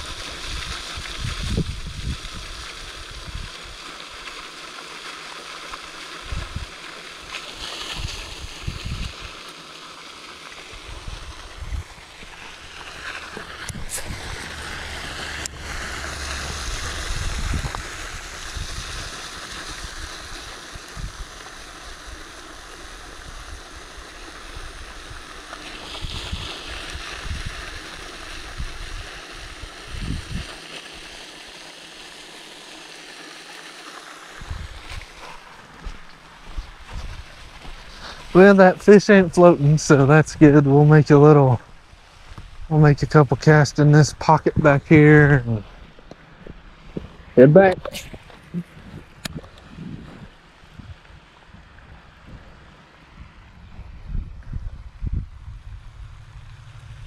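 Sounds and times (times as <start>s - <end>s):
water lapping and splashing: 0.0s - 39.7s
wind thumping on microphone: 0.4s - 2.6s, 6.2s - 6.7s, 7.9s - 9.2s, 10.8s - 20.3s, 25.9s - 27.8s, 29.9s - 30.5s, 34.4s - 38.4s, 45.6s - 57.0s.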